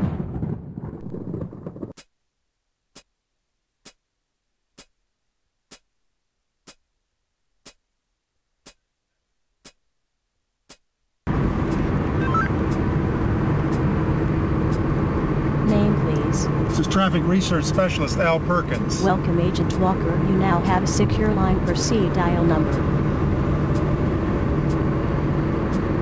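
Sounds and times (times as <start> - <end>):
car cabin road and engine noise: 11.3 - 26.0
clock-like ticking: 18.8 - 23.9.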